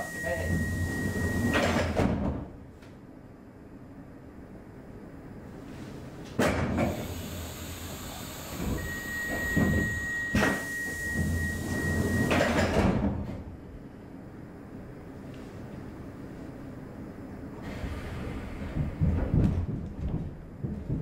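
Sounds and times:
high warning beep: 0.0s - 1.6s, 8.7s - 12.4s
train doors closing: 0.0s - 2.6s, 6.2s - 13.6s, 17.6s - 19.7s.

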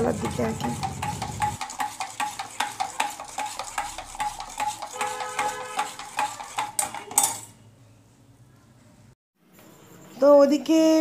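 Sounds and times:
metal spoon clinking in steel vessel: 0.2s - 7.6s.

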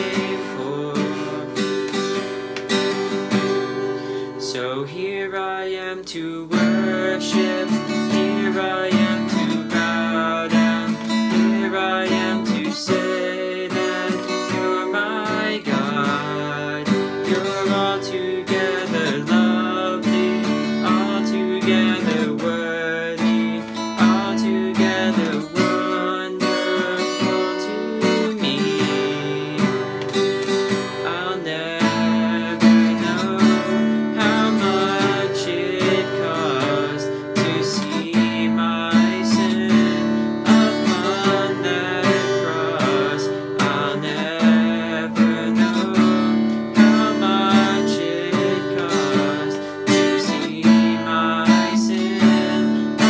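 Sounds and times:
acoustic guitar strumming: 0.0s - 53.0s
man singing: 0.0s - 53.0s.

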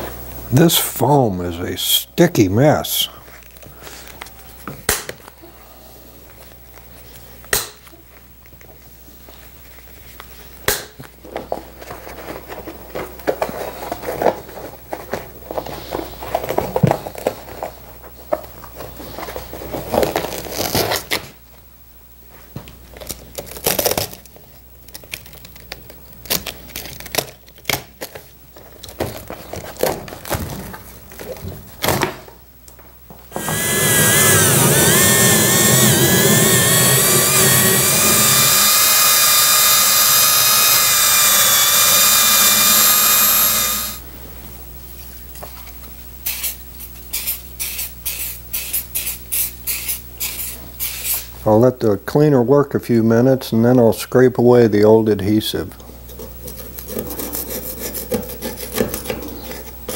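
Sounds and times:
electric tool motor whine: 33.3s - 44.0s.

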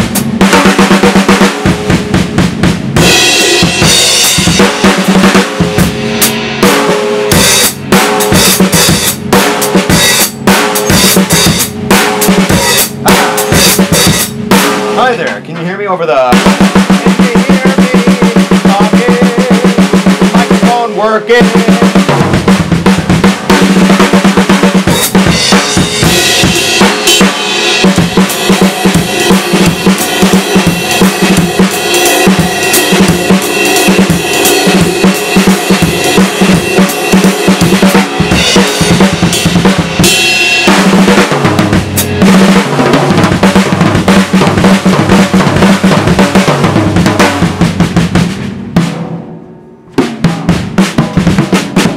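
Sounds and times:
drum kit playing: 0.0s - 51.9s
cymbals: 3.0s - 15.2s, 24.8s - 43.4s.

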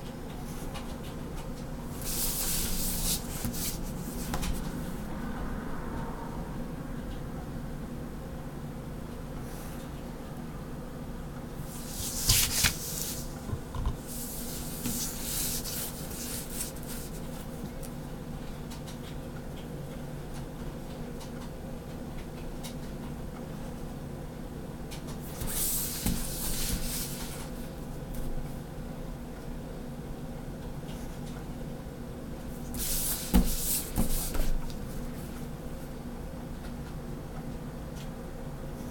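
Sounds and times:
pen scratching on paper: 14.1s - 17.3s.

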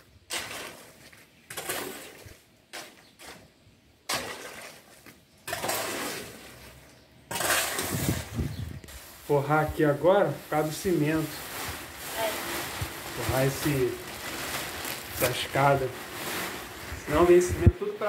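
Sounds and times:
shovel scraping wet concrete: 0.3s - 12.3s.

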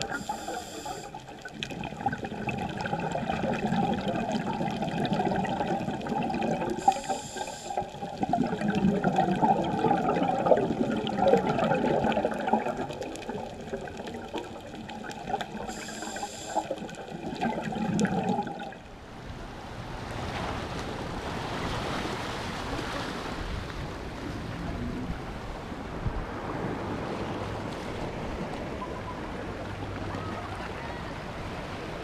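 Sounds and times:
sea washing on rocky shore: 0.0s - 18.8s
underwater scuba breathing bubbles: 0.0s - 18.8s.

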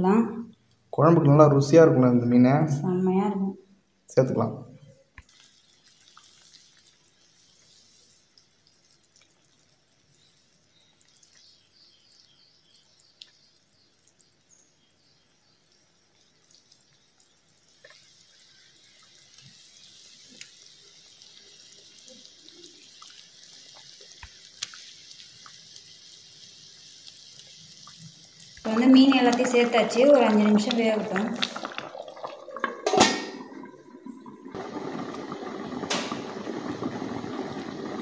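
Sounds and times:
curry bubbling: 5.2s - 38.0s
small plops: 28.6s - 34.4s.

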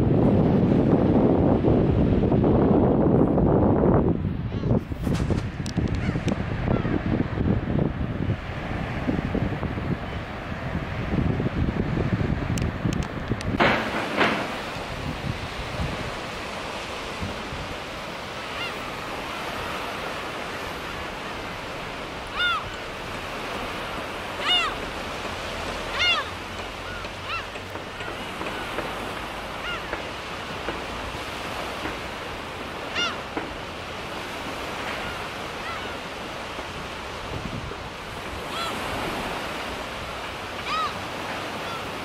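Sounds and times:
surf washing on beach: 0.0s - 42.0s
gulls calling: 5.9s - 7.1s, 17.8s - 37.0s, 38.0s - 42.0s.

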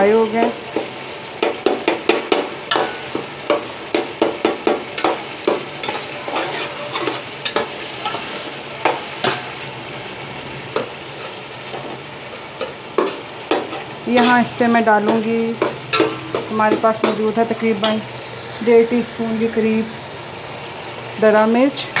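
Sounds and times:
food sizzling in oil: 0.0s - 22.0s
metal spatula scraping a pot: 5.0s - 9.6s, 12.6s - 18.0s.

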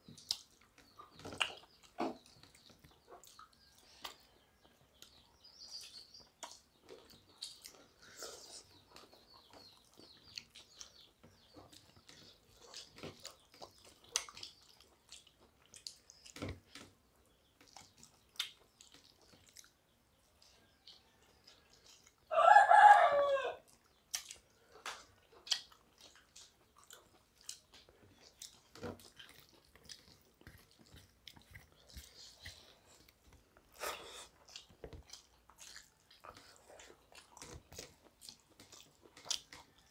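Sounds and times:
soft chewing: 0.0s - 39.9s.

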